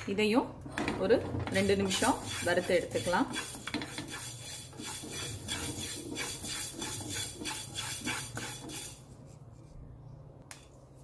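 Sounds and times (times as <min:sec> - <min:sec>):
spatula scraping pan: 0:01.3 - 0:09.4.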